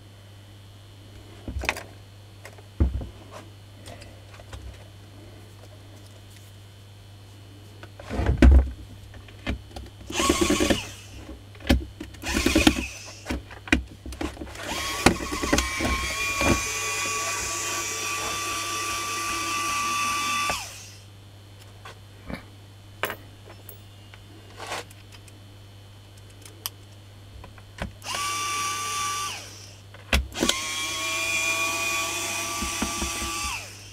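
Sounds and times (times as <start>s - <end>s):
polisher motor whining: 14.6s - 21.0s, 28.0s - 29.8s, 30.4s - 33.9s.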